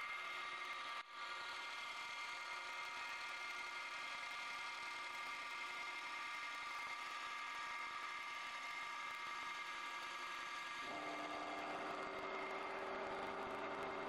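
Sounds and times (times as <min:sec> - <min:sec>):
wood lathe humming with high whine: 0:00.0 - 0:14.0
lower machine hum: 0:10.8 - 0:14.0.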